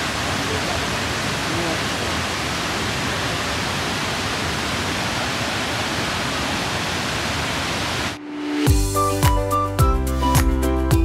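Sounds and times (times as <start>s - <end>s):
waterfall rushing: 0.0s - 8.7s.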